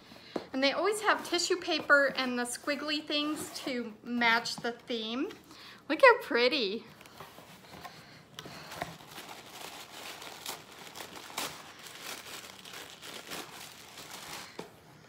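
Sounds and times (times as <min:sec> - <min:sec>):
tissue paper crinkling: 0:08.6 - 0:14.7.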